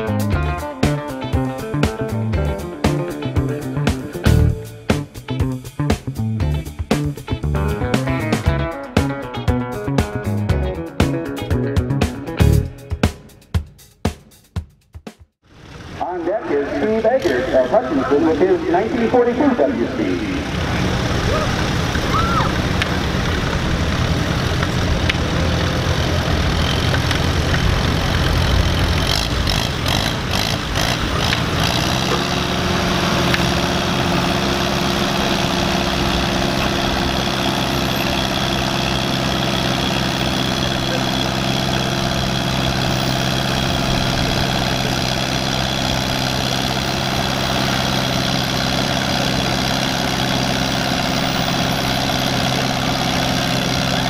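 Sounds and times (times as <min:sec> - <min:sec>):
tractor engine pulling: 0:15.5 - 0:54.0.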